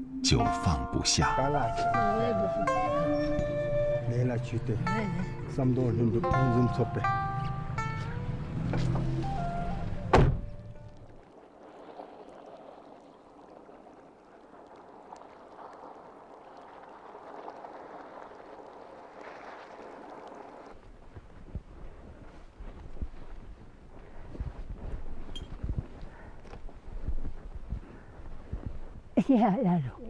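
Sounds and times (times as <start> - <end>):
vehicle door slamming: 8.7 - 10.7
low rumble: 10.4 - 23.6.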